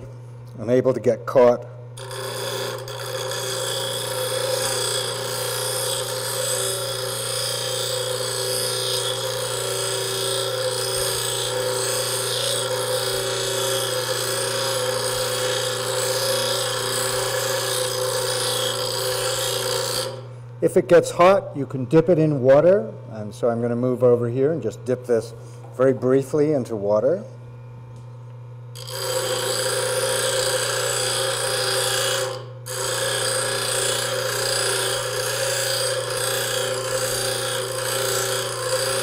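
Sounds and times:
grinder motor hum: 1.4s - 21.0s, 22.6s - 39.0s
grinder grinding steel: 2.0s - 20.3s, 28.8s - 39.0s.

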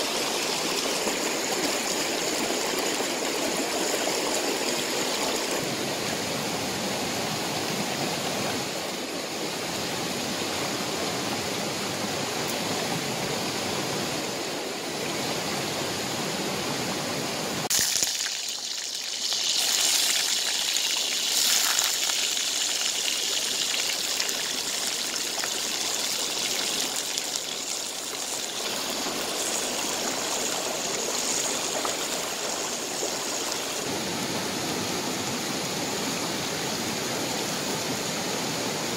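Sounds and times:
stream water rushing: 0.0s - 18.3s, 19.3s - 38.9s.

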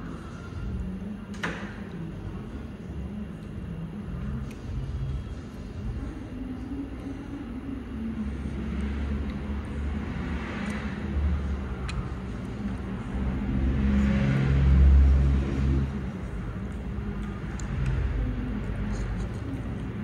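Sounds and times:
road traffic rumbling: 0.0s - 20.0s
vehicle passing: 8.0s - 20.0s.

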